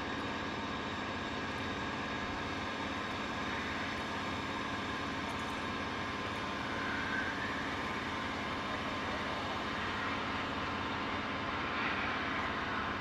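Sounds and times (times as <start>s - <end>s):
jet engines rushing with whine: 0.0s - 13.0s.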